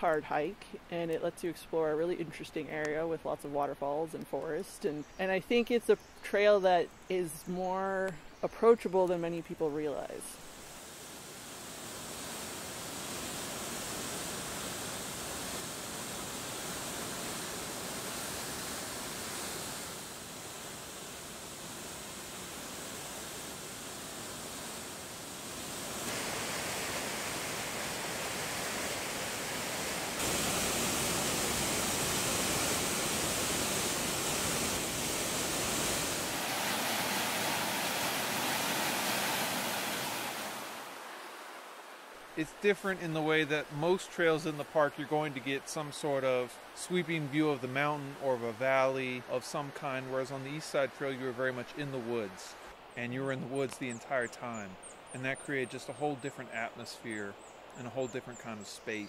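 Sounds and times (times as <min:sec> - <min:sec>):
waterfall rushing: 0:09.4 - 0:54.2.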